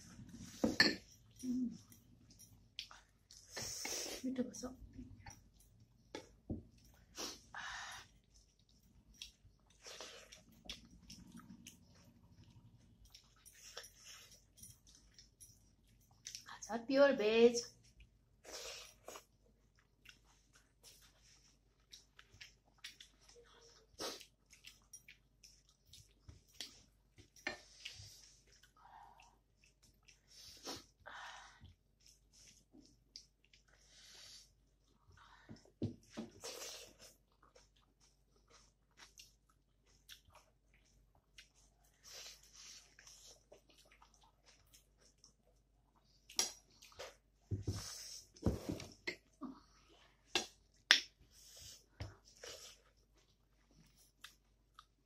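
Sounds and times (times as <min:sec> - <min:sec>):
person chewing with wet mouth sounds: 0:00.0 - 0:04.2, 0:04.8 - 0:16.6, 0:17.8 - 0:55.0
wet squishing of food mixed by hand: 0:02.6 - 0:13.4.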